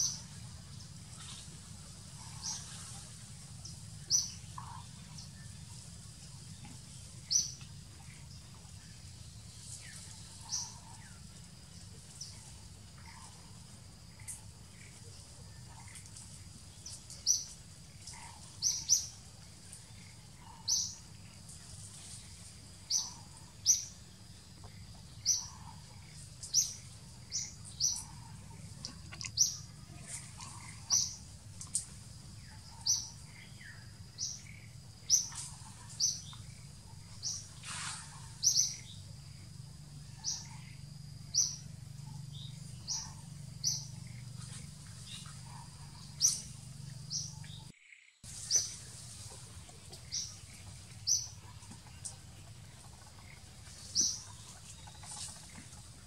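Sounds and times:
bird chirping: 0:00.0 - 0:01.4, 0:16.8 - 0:56.0
steady low hum: 0:00.0 - 0:56.0.

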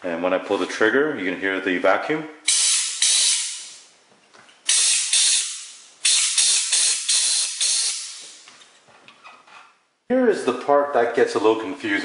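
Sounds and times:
compressed air hissing: 0:02.5 - 0:03.8, 0:04.7 - 0:08.4.

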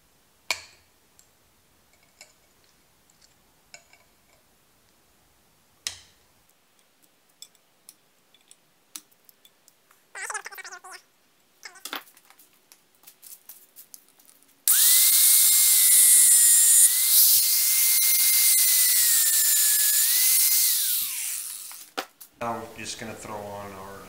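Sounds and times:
angle grinder whine: 0:14.7 - 0:21.9.

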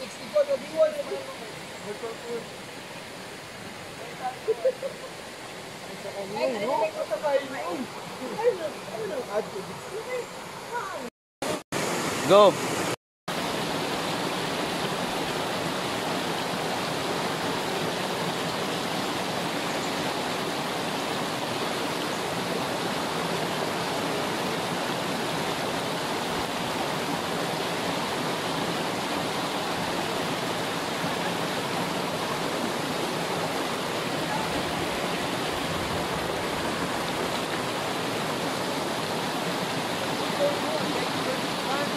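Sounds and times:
waterfall rushing over rocks: 0:00.0 - 0:41.9.

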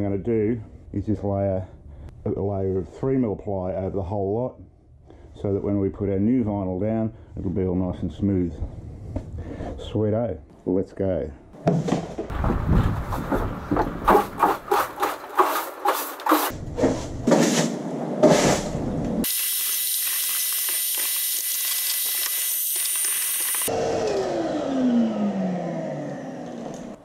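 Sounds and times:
broom sweeping wooden floor: 0:11.7 - 0:18.8
vacuum cleaner running: 0:19.2 - 0:27.0.

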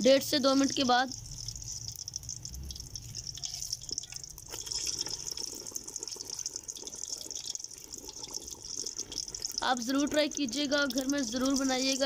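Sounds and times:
oil sizzling and crackling: 0:00.0 - 0:12.0.

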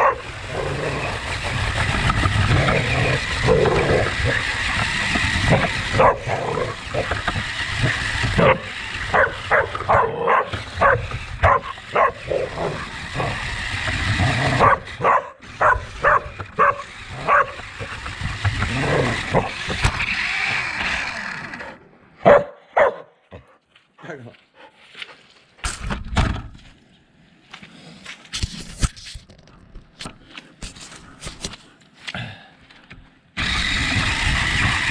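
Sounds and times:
dog barking and yipping: 0:00.0 - 0:00.5, 0:05.4 - 0:07.1, 0:08.3 - 0:13.4, 0:14.5 - 0:18.0, 0:22.2 - 0:23.1
remote-control car motor: 0:00.0 - 0:21.9, 0:33.4 - 0:34.9.

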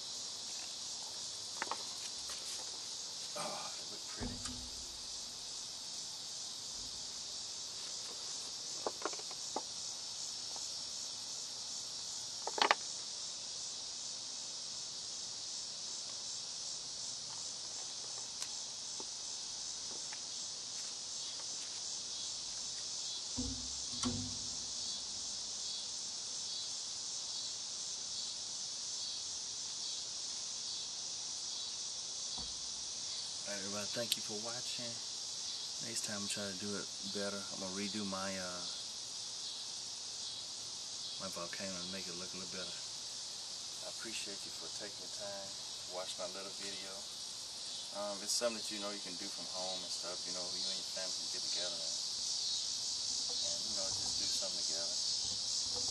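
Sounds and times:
crickets chirping: 0:00.0 - 0:55.9
short low knocks: 0:04.0 - 0:05.2, 0:23.4 - 0:25.4.

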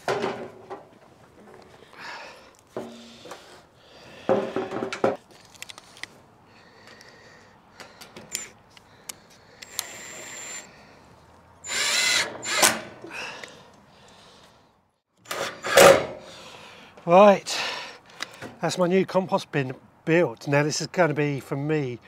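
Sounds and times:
cordless drill bursts: 0:09.6 - 0:10.7, 0:11.6 - 0:12.9.

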